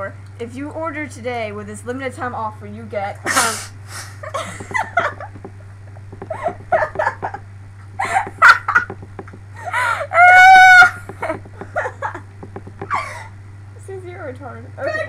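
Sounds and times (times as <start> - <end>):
girls laughing: 4.2 - 7.4, 8.0 - 9.0, 9.6 - 13.3.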